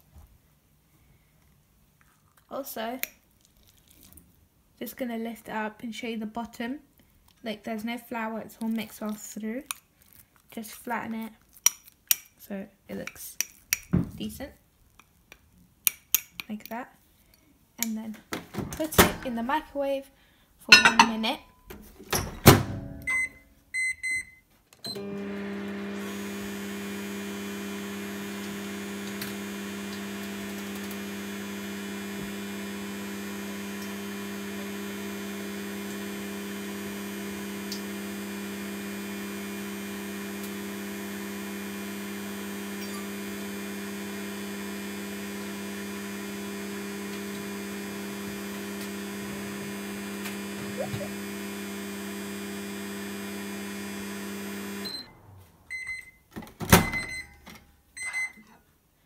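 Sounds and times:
microwave humming: 20.7s - 21.3s, 24.9s - 55.3s
keypad beeps: 58.0s - 58.4s.

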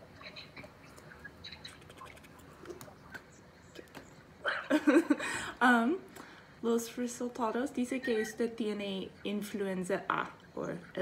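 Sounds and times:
woman laughing out loud: 4.4s - 5.5s.

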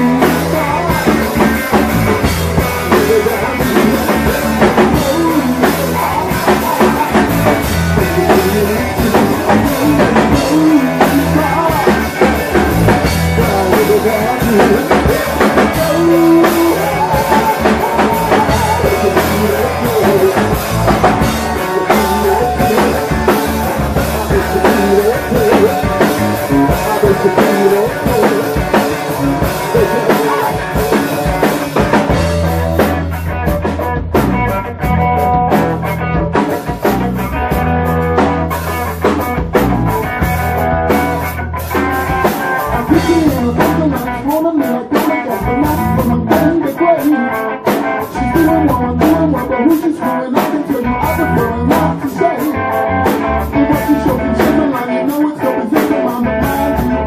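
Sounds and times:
drum kit hitting: 0.0s - 44.0s
rock band playing live: 0.0s - 57.0s.

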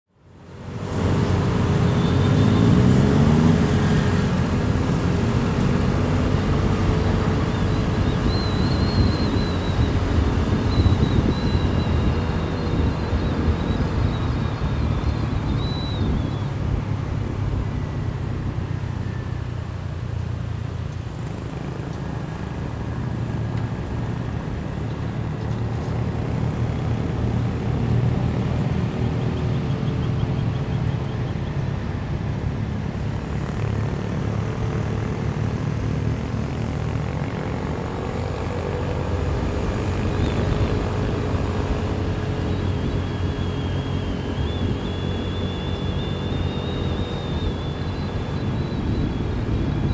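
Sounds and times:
wind rushing over microphone: 0.6s - 19.3s, 34.5s - 49.9s
motorcycle engine droning: 0.7s - 32.3s, 33.0s - 49.9s.

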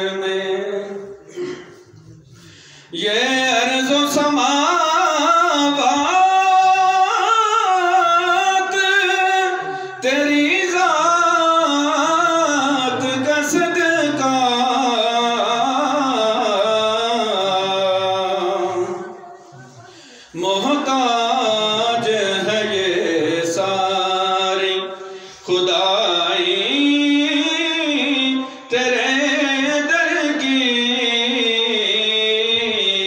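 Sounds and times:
man singing devotional song: 0.0s - 33.0s.

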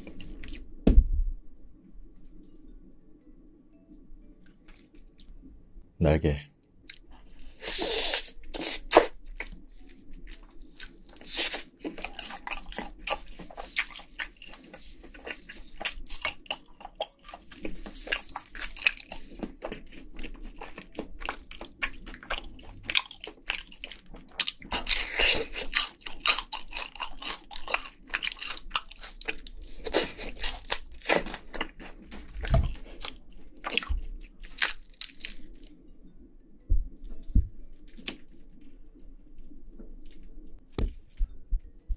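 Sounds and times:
crunching and chewing fried chicken: 6.9s - 35.8s.

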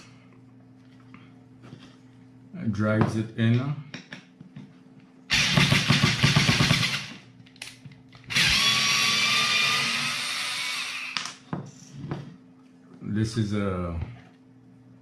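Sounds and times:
cordless screwdriver motor: 8.3s - 11.2s.

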